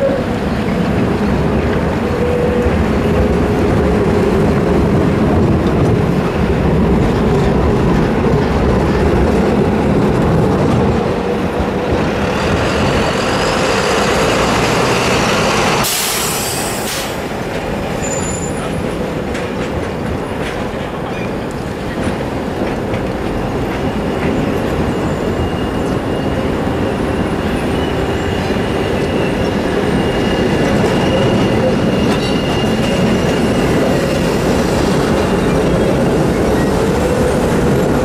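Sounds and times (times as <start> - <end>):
city bus passing: 0.0 - 38.0
tram rumbling over rails: 0.0 - 38.0
loud hiss of air: 15.8 - 17.4.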